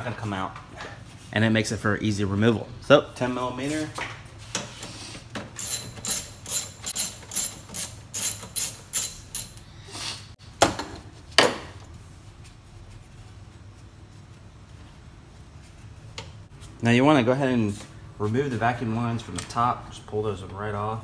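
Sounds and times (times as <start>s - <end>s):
ratchet clicking: 5.6s - 9.6s.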